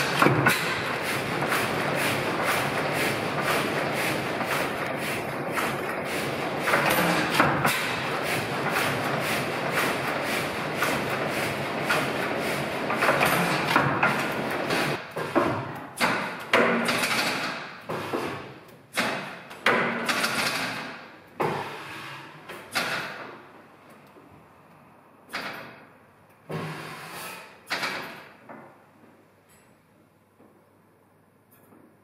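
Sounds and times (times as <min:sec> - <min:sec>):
stationary engine firing beats: 0:00.0 - 0:15.2.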